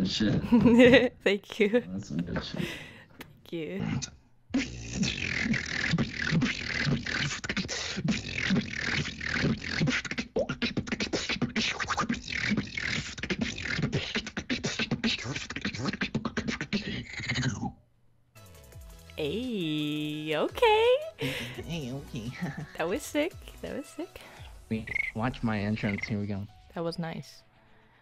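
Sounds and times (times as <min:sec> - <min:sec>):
woman beatboxing: 0:03.7 - 0:17.7, 0:19.2 - 0:21.7.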